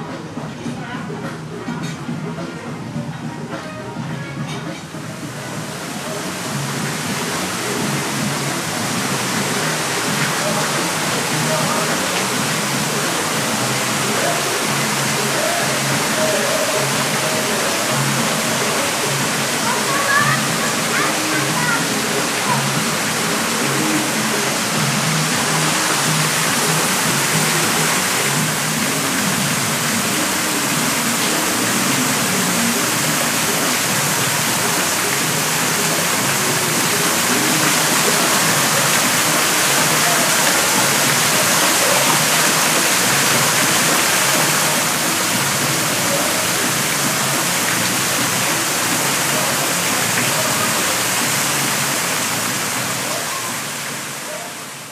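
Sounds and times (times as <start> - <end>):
falling water rushing: 0.0 - 54.9.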